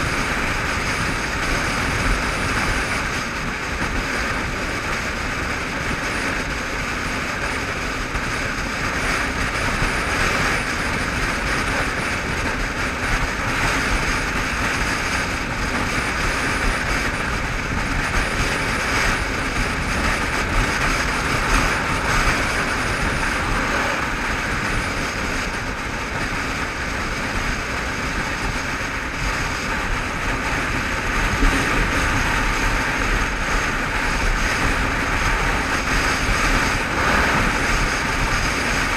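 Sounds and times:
motorcycle engine and road noise: 0.0s - 38.9s
wind rushing over microphone: 0.0s - 38.9s.

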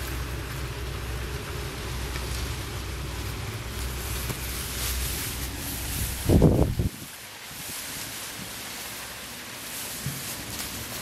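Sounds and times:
wind blowing across microphone: 2.1s - 9.0s.

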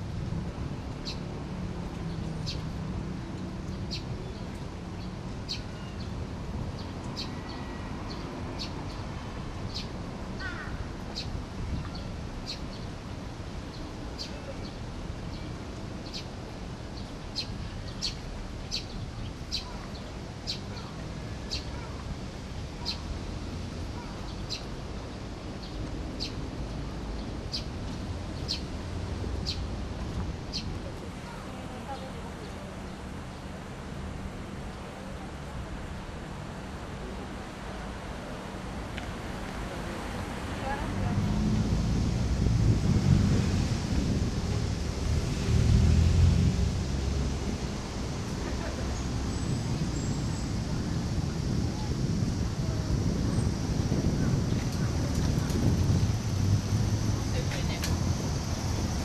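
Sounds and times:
low outdoor rumble: 38.6s - 59.0s.

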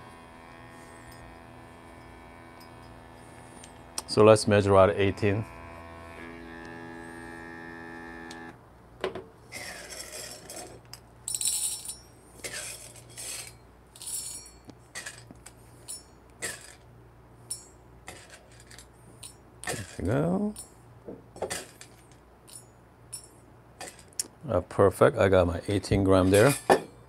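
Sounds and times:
coffee beans rattling into metal cup: 9.6s - 16.8s, 18.1s - 20.6s, 21.4s - 22.6s, 23.8s - 24.2s, 26.2s - 26.8s.

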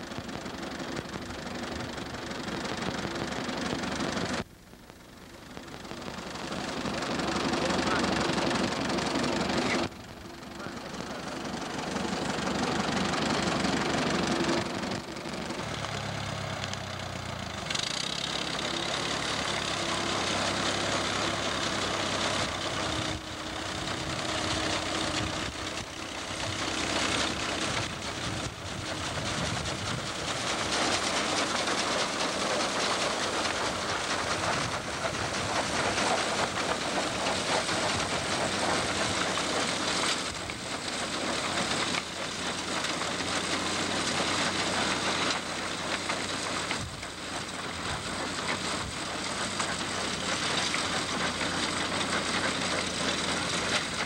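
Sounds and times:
tractor engine running: 0.0s - 54.0s
binder machinery clattering: 22.3s - 54.0s.

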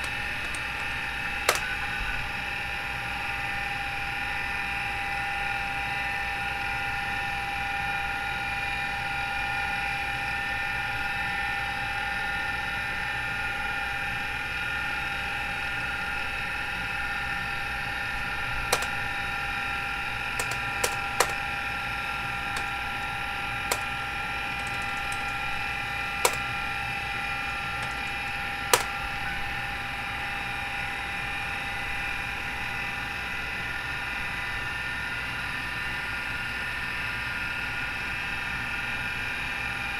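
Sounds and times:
sharp clicks: 0.0s - 1.9s, 18.7s - 19.2s, 20.4s - 21.6s, 22.4s - 26.6s, 27.6s - 29.2s
hard drive spinning whine: 0.0s - 8.5s.

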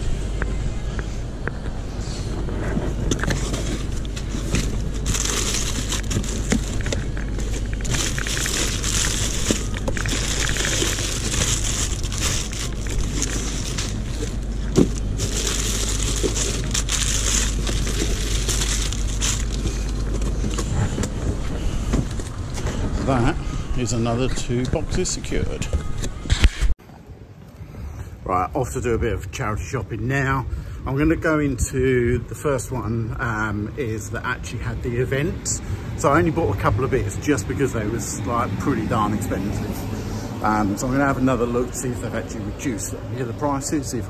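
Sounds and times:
steady low hum: 0.0s - 44.0s
cardboard tray rustling: 2.8s - 23.0s
plastic packets crinkling: 3.2s - 21.2s.

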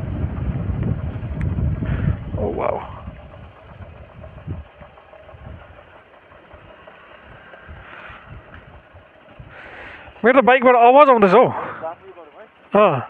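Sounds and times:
wind on microphone: 0.0s - 5.9s, 6.6s - 9.6s
motorcycle engine running: 0.0s - 13.0s
rhythmic clutch clicking: 0.0s - 13.0s.

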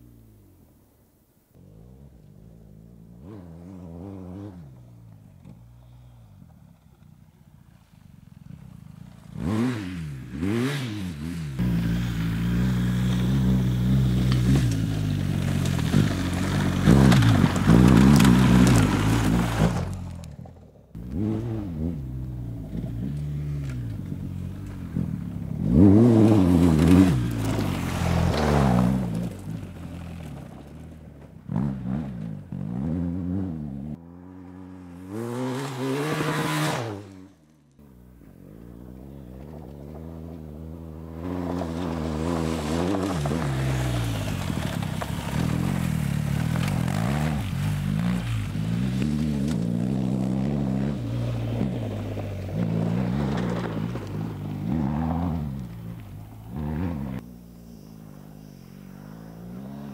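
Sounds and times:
motorcycle engine revving: 1.6s - 59.9s
gravel clattering under tyres: 11.6s - 32.9s, 35.5s - 59.9s.

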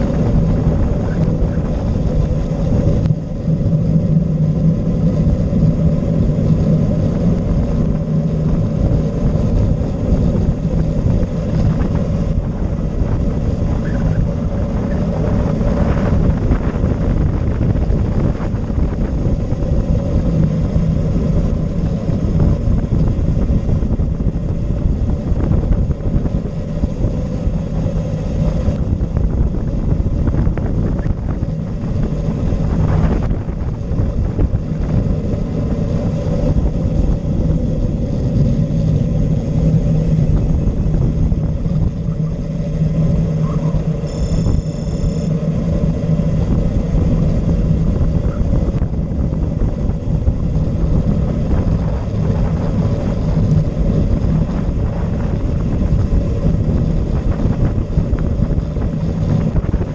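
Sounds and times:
bike tyres on asphalt: 0.0s - 59.9s
constant low hum: 0.0s - 59.9s
wind on microphone: 0.0s - 59.9s.

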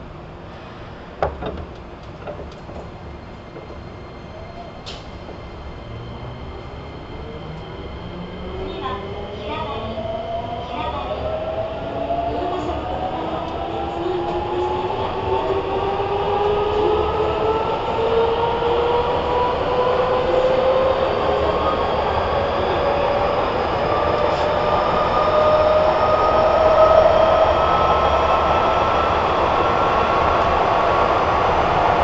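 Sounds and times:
train wheels rolling: 1.2s - 5.9s.

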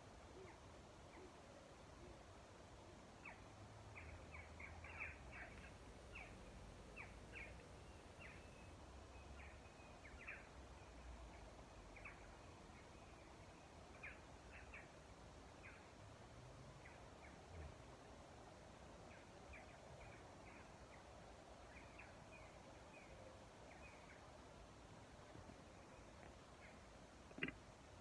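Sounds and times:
faint bird chirps: 3.2s - 16.0s.

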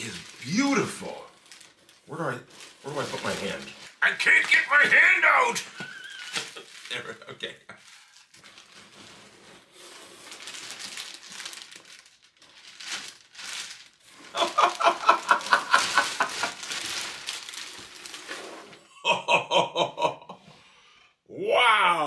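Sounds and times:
plastic bag crinkling: 0.0s - 18.8s
man laughing: 4.3s - 8.0s, 14.3s - 16.8s, 18.9s - 20.5s.

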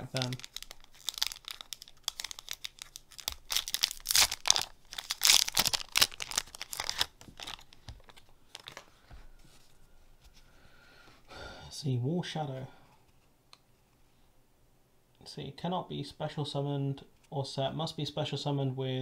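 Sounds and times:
foil wrapper tearing and crinkling: 0.0s - 8.8s.

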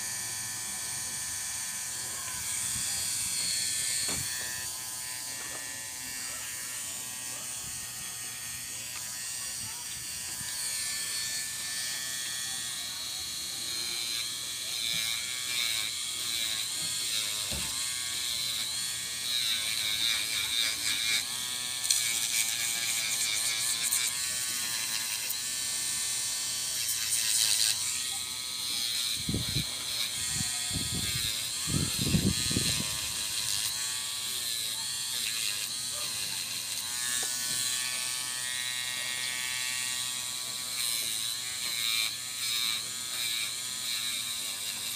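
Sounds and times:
electric nail drill whining: 0.0s - 44.9s.

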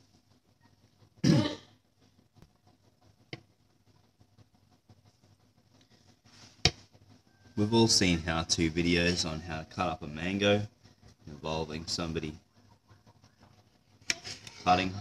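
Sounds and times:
man clearing his throat: 1.2s - 1.7s.

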